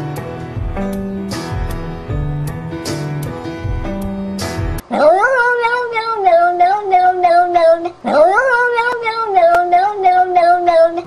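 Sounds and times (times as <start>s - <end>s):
cat yowling: 4.9s - 11.0s.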